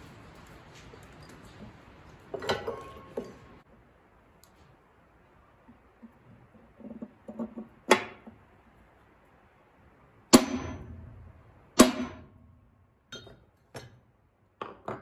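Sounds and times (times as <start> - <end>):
hammer striking punch on steel: 10.3 - 12.4.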